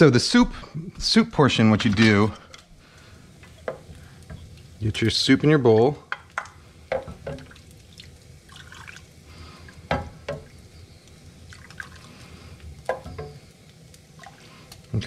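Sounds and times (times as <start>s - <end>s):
ladle knocking on pot: 6.1s - 7.5s
liquid pouring and dripping: 6.3s - 15.0s.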